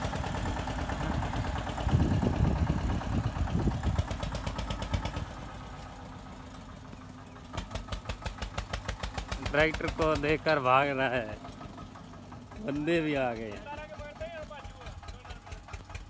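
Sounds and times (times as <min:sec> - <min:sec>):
diesel tractor engine: 0:00.0 - 0:16.0.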